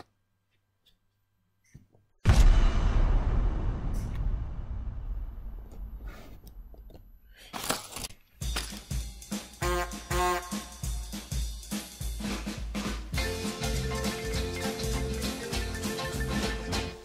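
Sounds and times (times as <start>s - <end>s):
deep boom impact: 2.2s - 6.8s
drum-led music: 8.4s - 17.0s.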